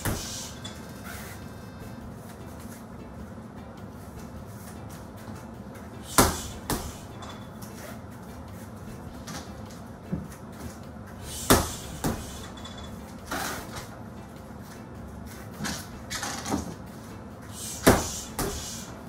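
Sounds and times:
gloves punching heavy bag: 6.1 - 7.0, 11.4 - 12.5, 17.7 - 18.8.

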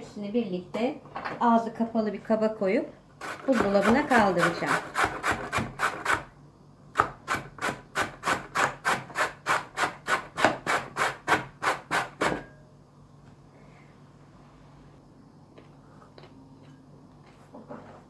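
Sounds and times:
carrot grated on metal grater: 3.2 - 6.2.

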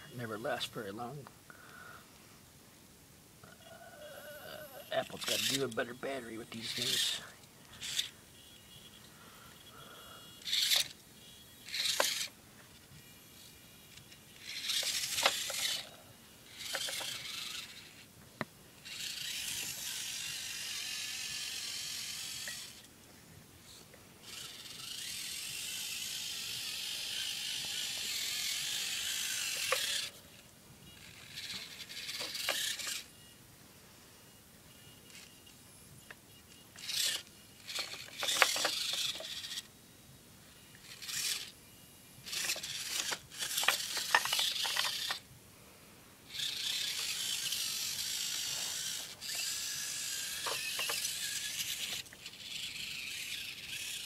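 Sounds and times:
small electric motor whirring: 3.5 - 23.0, 23.7 - 33.3, 34.2 - 39.8, 40.5 - 45.2, 46.3 - 54.0
toy crawler knocking on rock: 14.6 - 15.8, 16.6 - 17.3, 37.1 - 39.6, 42.3 - 45.2, 50.2 - 52.1.

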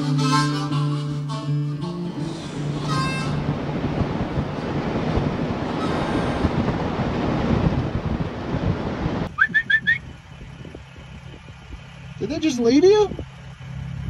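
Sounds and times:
wind buffeting microphone: 2.4 - 13.5.

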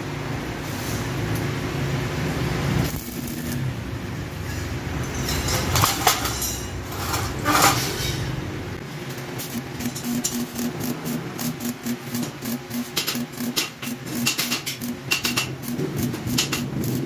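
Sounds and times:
arc welding in short pulses: 2.8 - 3.8, 9.4 - 17.0
steady low hum: 8.0 - 17.0.

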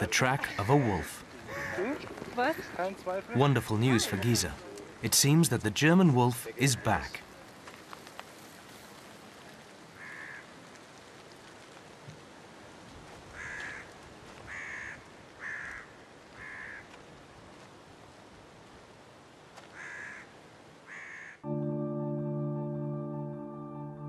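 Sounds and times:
faint outdoor hiss: 0.0 - 24.0
crow cawing: 0.5 - 3.0, 10.0 - 10.6, 13.4 - 13.9, 14.5 - 17.0, 19.7 - 20.3, 20.9 - 21.4.

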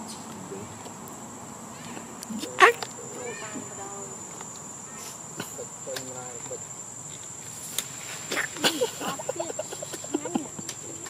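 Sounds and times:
insects shrilling: 0.0 - 11.0
short pitched calls: 2.3 - 4.0, 4.7 - 5.9, 7.6 - 8.9.

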